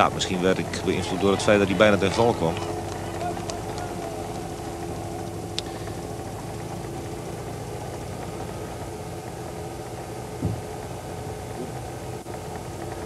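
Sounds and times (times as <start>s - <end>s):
steady engine drone: 0.0s - 13.0s
short low thump: 10.4s - 10.7s.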